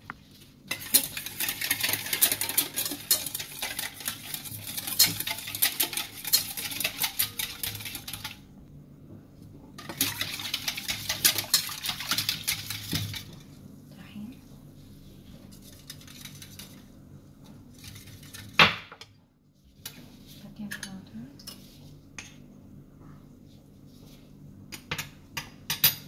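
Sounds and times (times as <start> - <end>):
wire whisk beating in metal bowl: 0.7 - 8.4, 9.8 - 13.4.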